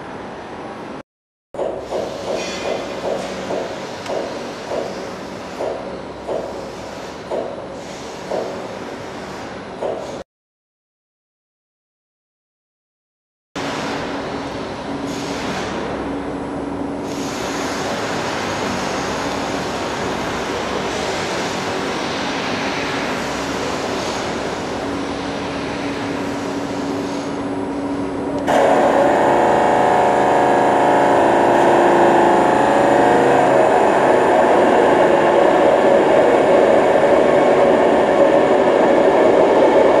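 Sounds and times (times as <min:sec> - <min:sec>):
mechanical running hum: 0:13.6 - 0:40.0.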